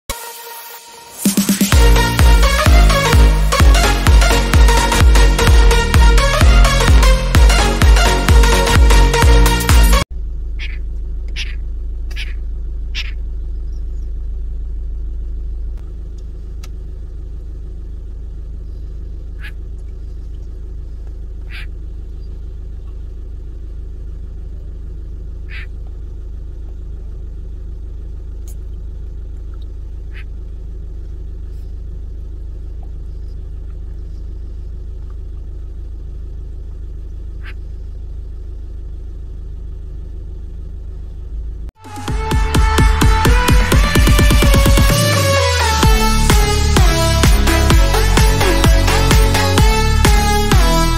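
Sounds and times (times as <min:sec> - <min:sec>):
vehicle engine idling: 0:00.1 - 0:50.9
sharp bird calls: 0:10.6 - 0:14.2, 0:18.6 - 0:23.1, 0:25.4 - 0:25.8, 0:28.4 - 0:30.4, 0:33.0 - 0:35.1, 0:36.6 - 0:38.8.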